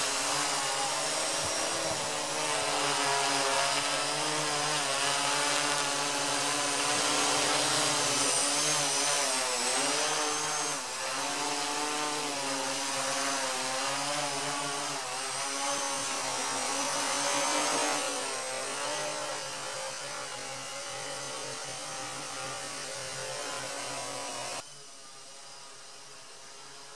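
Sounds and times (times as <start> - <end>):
drone propellers buzzing: 0.0 - 24.6.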